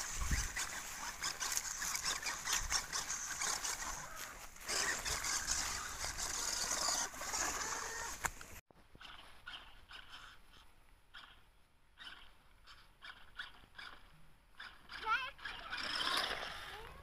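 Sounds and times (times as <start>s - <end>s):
tyres crackling over leaves: 0.0s - 8.6s
small electric motor whirring: 0.0s - 11.4s, 12.0s - 17.0s.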